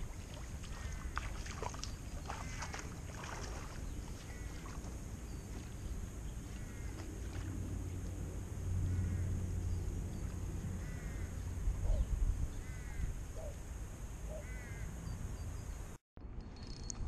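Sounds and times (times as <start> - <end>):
bird calling: 0.7 - 7.4, 10.8 - 13.6, 14.3 - 15.2.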